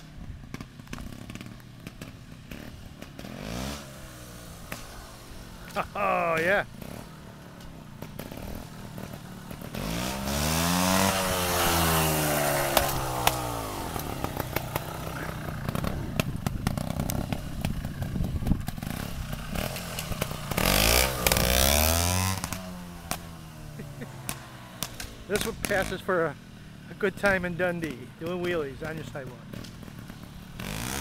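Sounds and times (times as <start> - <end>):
motorbike engine revving: 0.0 - 31.0
sharp engine ticks: 23.8 - 30.9.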